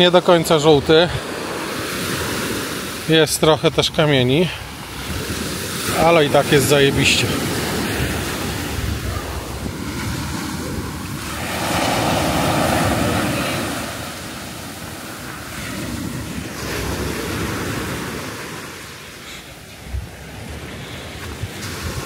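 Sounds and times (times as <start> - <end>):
sea waves washing onto beach: 0.0 - 22.0
wind on microphone: 4.4 - 18.3, 19.8 - 22.0.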